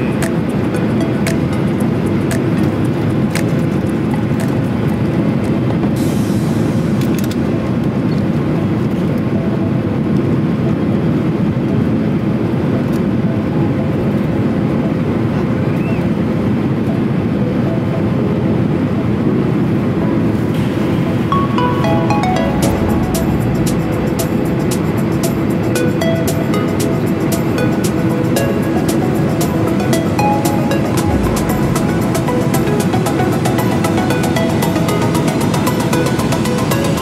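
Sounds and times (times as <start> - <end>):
jet engines rumbling: 19.1 - 37.0
air rushing past fuselage: 20.6 - 27.3, 29.5 - 35.0.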